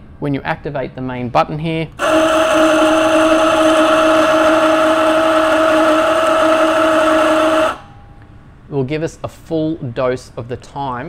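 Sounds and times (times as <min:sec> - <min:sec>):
coffee grinder motor humming: 0:02.0 - 0:07.9.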